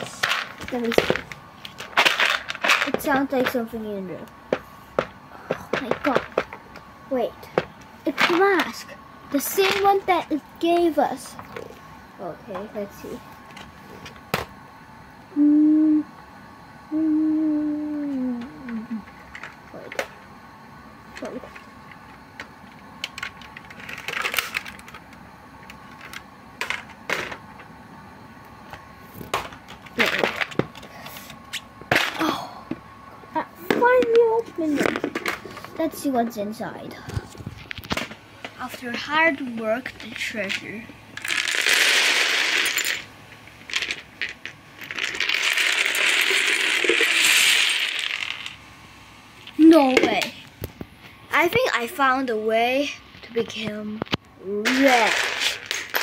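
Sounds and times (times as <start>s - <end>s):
plastic gems clattering onto wood: 0.2s - 3.6s, 41.2s - 43.0s, 43.6s - 48.6s, 54.6s - 56.0s.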